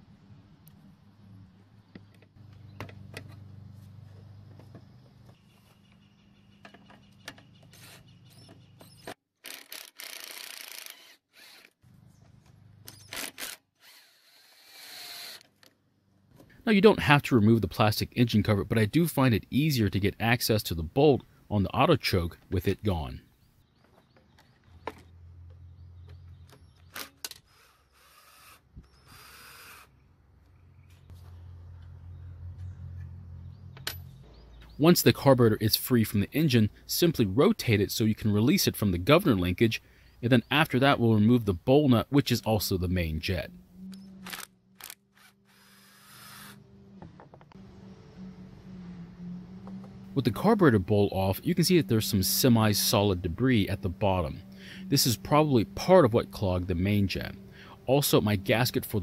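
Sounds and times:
low hum: 41.2 - 59.0.

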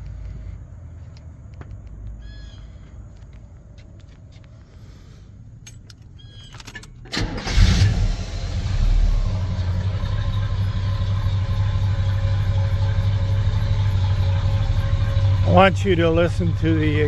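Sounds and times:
ignition clicks: 5.6 - 9.5
engine starting and idling: 6.4 - 17.0.

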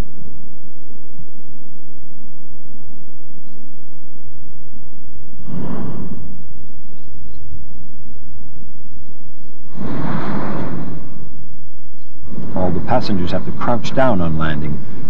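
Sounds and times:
low outdoor rumble: 0.0 - 15.0
propane burner blast: 9.7 - 11.6, 12.2 - 15.0.

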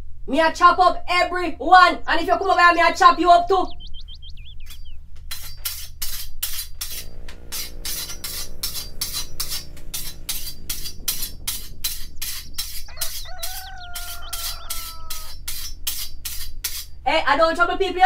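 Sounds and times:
metal blade strokes: 4.7 - 17.0.

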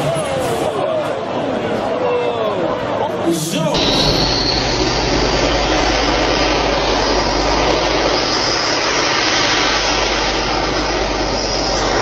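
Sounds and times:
engine running at high power: 3.7 - 12.0.

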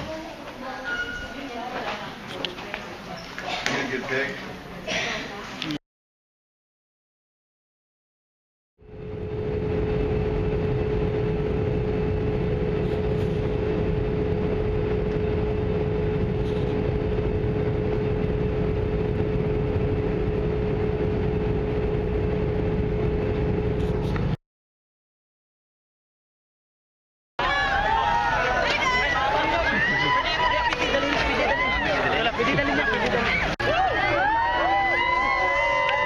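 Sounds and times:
airliner cabin drone: 8.8 - 24.4.

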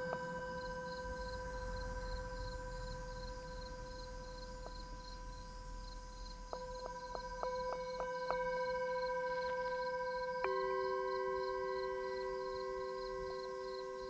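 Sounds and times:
insects chirping: 0.0 - 14.0
metal singing bowl ringing: 6.5 - 14.0.

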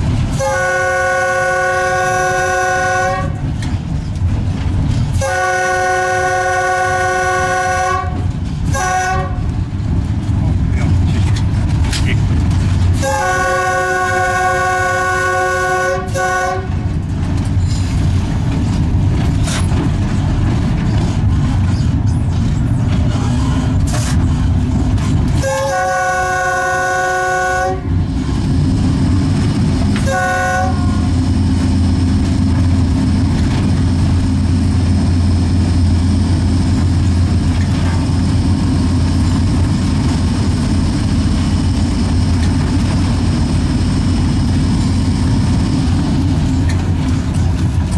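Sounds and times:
locomotive hum and track noise: 0.0 - 47.9
locomotive horn blasts: 0.3 - 3.5, 5.1 - 9.6, 13.0 - 16.8, 25.4 - 28.0, 30.0 - 31.2.

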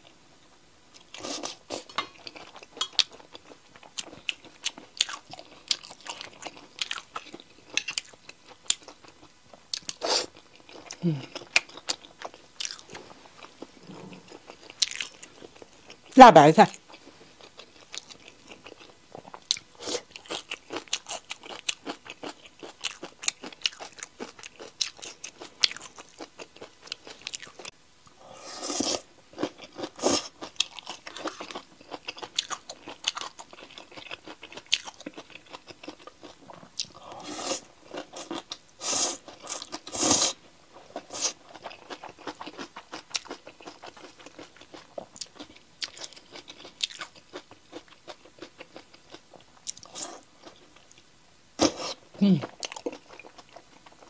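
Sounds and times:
crunching and chewing: 1.0 - 27.7, 28.6 - 54.0.

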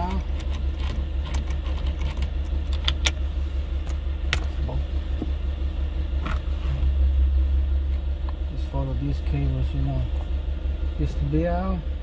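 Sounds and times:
sharp clicks and knocks: 0.0 - 3.2
steady low rumble: 0.0 - 12.0.

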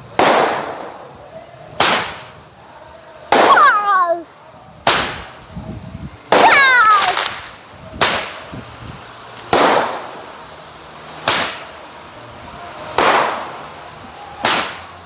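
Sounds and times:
roman candle shots: 0.0 - 15.0.

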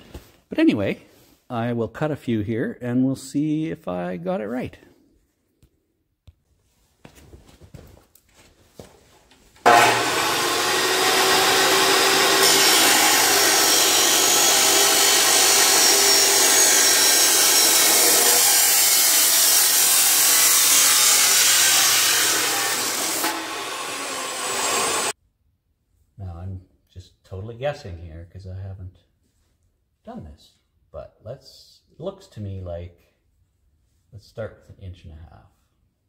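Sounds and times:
chop saw grinding through steel: 9.6 - 25.2.

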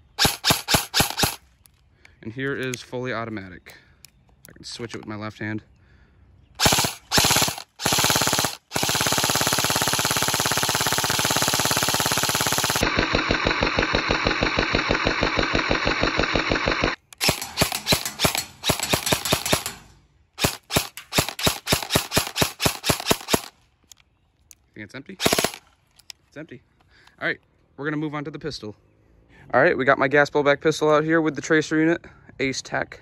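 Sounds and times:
airsoft gun firing bursts: 0.1 - 1.4, 6.6 - 19.8, 20.4 - 23.5, 25.2 - 25.6.

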